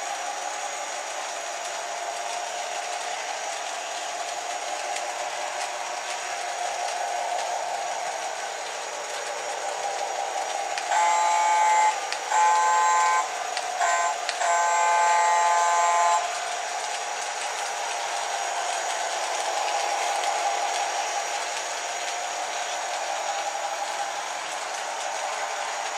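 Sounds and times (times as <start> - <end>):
model train running on track: 0.0 - 25.9
model train horn blasts: 10.9 - 16.4.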